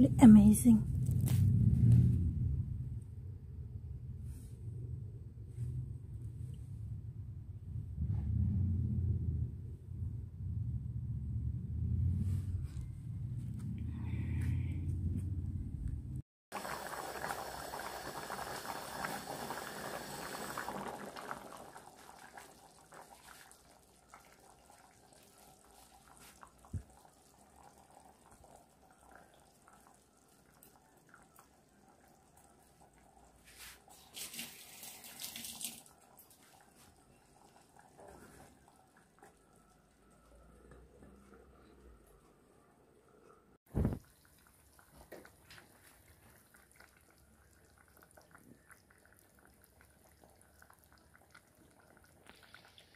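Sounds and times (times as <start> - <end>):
curry bubbling in a saucepan: 16.5 - 41.8, 43.7 - 52.9.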